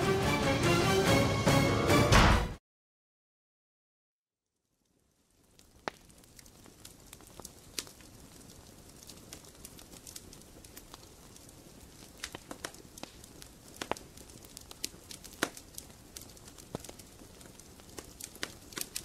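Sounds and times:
low steady hiss: 4.6s - 19.0s
crackling clicks: 4.9s - 19.0s.

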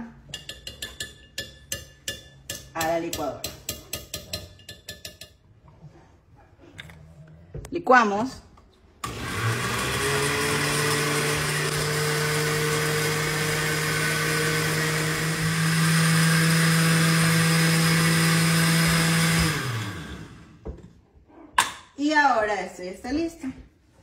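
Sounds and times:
blender motor running: 9.0s - 20.6s.

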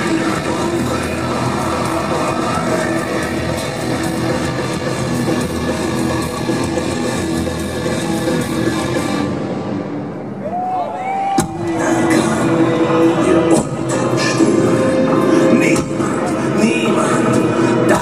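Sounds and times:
rock music with guitars: 0.0s - 10.4s, 11.4s - 18.0s.

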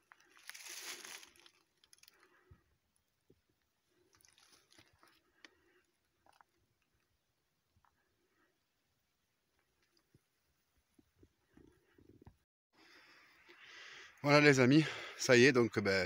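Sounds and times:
footsteps crunching dry leaves: 0.3s - 1.6s.

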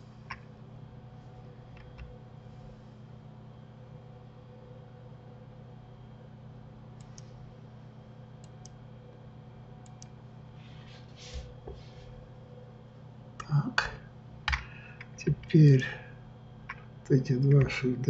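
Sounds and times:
low electrical hum: 0.0s - 18.0s
computer mouse clicks: 7.0s - 7.3s, 9.8s - 10.1s.

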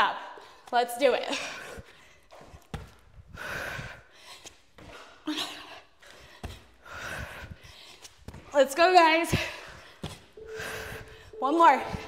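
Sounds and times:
woman breathing hard: 3.2s - 8.4s, 9.3s - 11.4s.

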